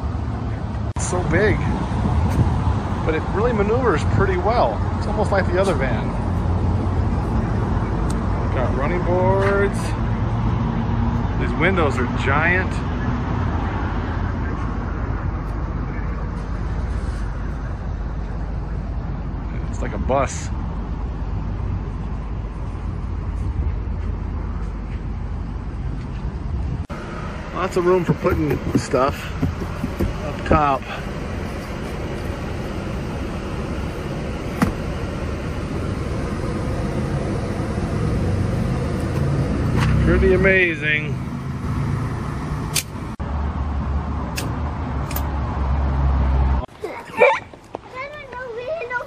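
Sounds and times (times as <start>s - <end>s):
road and engine rumble in van: 0.0s - 49.0s.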